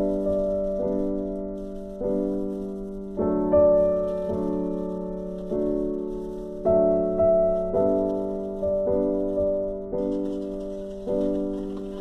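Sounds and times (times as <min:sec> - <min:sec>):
slow solo piano chords: 0:00.0 - 0:12.0.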